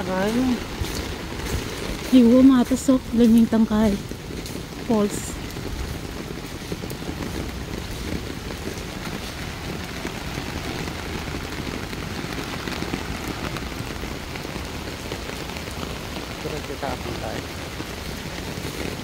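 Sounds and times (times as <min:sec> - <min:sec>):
heavy rain pouring: 0:00.0 - 0:19.0.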